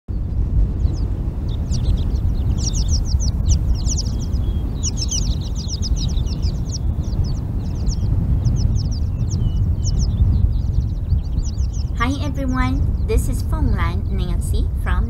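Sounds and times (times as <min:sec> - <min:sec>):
steady low rumble: 0:00.1 - 0:15.0.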